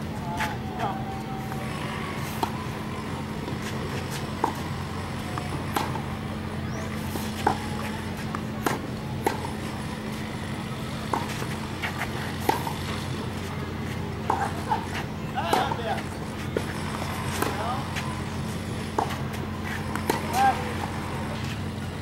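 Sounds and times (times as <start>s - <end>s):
low hum: 0.0s - 22.0s
tennis ball struck by rackets: 2.2s - 6.1s, 6.7s - 9.7s, 10.9s - 13.4s, 14.2s - 18.2s, 18.8s - 21.6s.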